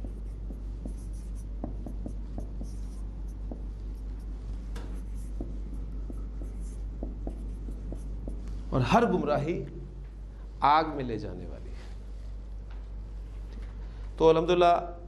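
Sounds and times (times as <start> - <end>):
marker scratching on whiteboard: 0.0 - 8.6
steady low hum: 0.0 - 15.0.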